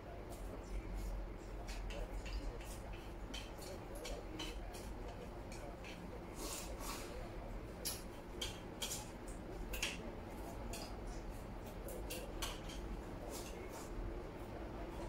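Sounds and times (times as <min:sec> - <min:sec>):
utensils clicking on ceramic bowls: 0:01.7 - 0:06.1, 0:07.8 - 0:10.0.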